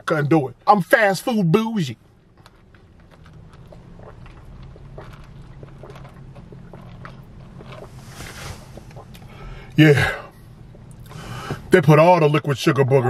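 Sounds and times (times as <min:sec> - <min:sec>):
low steady hum: 0:00.0 - 0:13.0
swallowing and mouth clicks: 0:02.2 - 0:11.7
sipping through a straw: 0:04.0 - 0:09.4.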